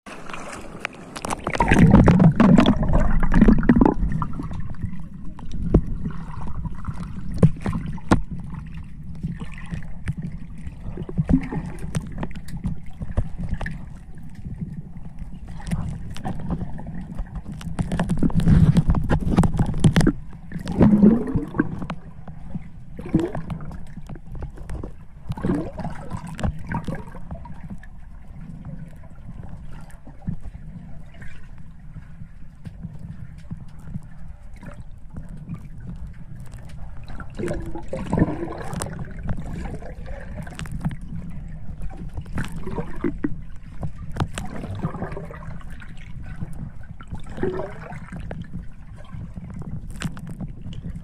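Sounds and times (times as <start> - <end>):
muffled underwater rumble and sloshing: 0.1 - 51.0.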